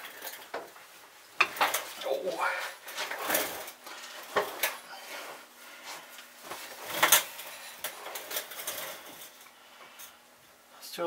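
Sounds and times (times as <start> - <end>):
metal tools clattering: 6.9 - 10.1.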